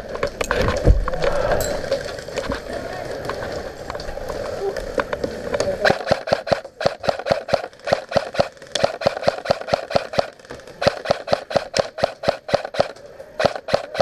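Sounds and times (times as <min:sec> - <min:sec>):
airsoft rifle shots: 0:05.8 - 0:14.0.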